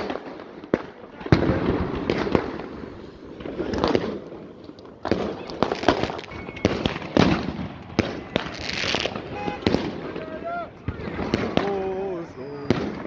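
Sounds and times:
fireworks sharp bangs: 0.0s - 13.0s.

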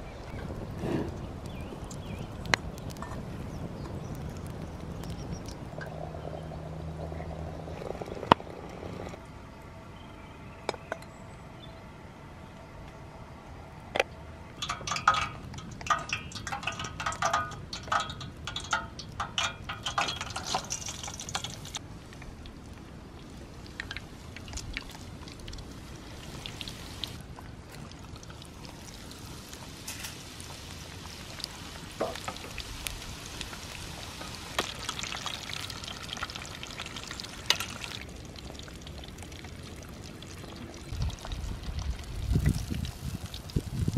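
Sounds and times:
hot oil sizzling: 0.0s - 6.2s, 14.6s - 21.8s, 23.2s - 43.9s
metal skimmer scraping frying pan: 14.6s - 21.8s.

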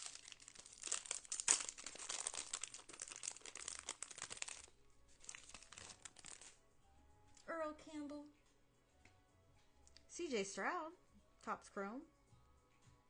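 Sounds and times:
card pack wrapper crinkling: 0.0s - 6.6s.

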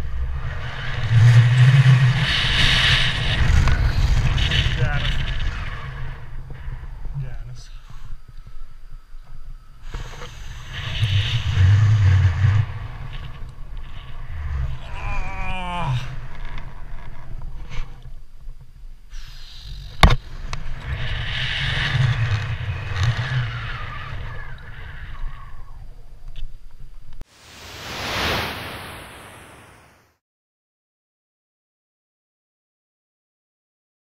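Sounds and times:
wind rushing over microphone: 0.0s - 18.7s, 19.9s - 30.0s
person shouting: 14.8s - 16.0s.

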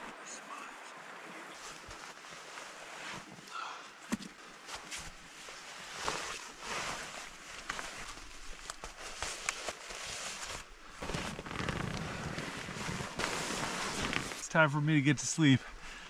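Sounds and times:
nylon fabric rustling: 4.8s - 14.5s.

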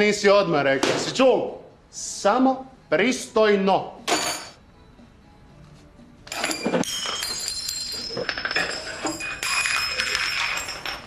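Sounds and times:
glasses and cups clattering: 4.1s - 4.6s, 6.3s - 11.0s.

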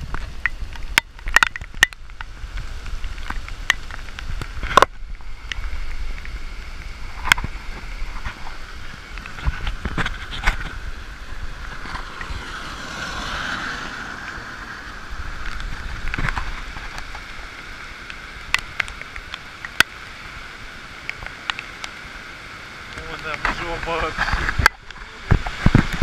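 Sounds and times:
bicycle tyres hissing on wet road: 0.0s - 26.0s
rain falling: 0.0s - 26.0s
low rumble: 2.0s - 17.4s.

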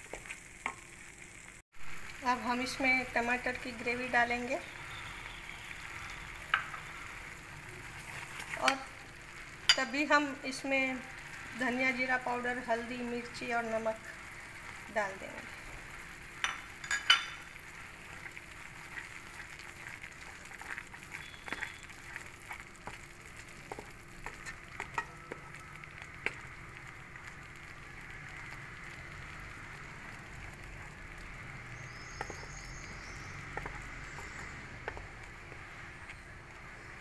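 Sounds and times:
gravy sizzling in a pan: 0.0s - 37.0s
spatula scraping a pan: 18.0s - 25.5s.

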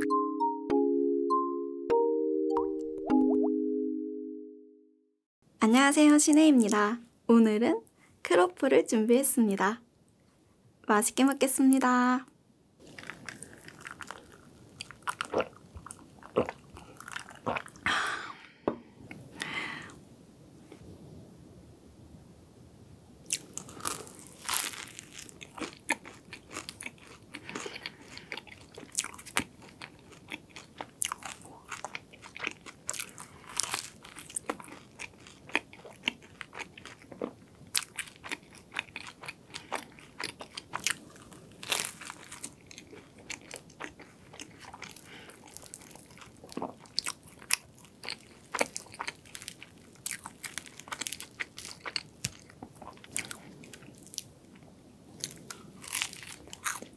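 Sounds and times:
crunching and chewing pastry: 12.8s - 17.8s, 23.3s - 56.9s.

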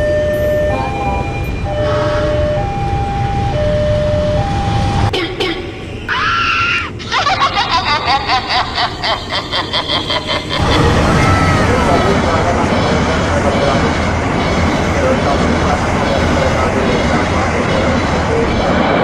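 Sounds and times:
two-tone hi-lo siren: 0.0s - 5.1s
low rumble: 7.0s - 19.0s
rapid warbling chattering sound: 10.2s - 19.0s.

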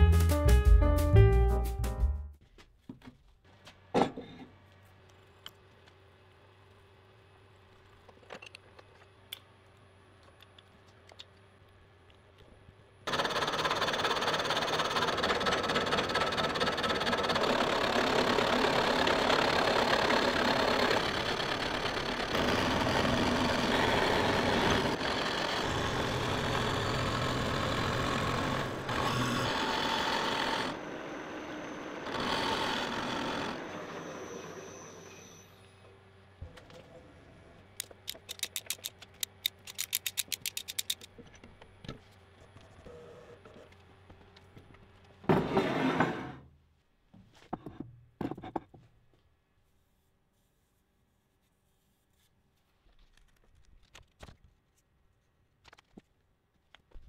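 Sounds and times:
milling machine cutting metal: 13.1s - 35.5s.

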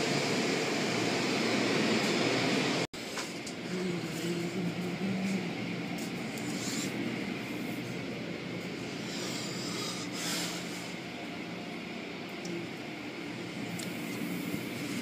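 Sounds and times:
car wash machinery hum: 0.0s - 15.0s.

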